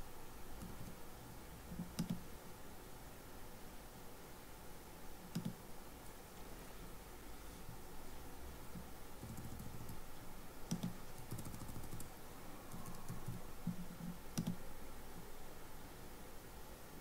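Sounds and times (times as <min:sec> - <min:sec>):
keyboard and mouse clicks: 0:01.7 - 0:02.3, 0:05.3 - 0:05.6, 0:08.7 - 0:10.0, 0:10.7 - 0:12.1, 0:12.7 - 0:14.6.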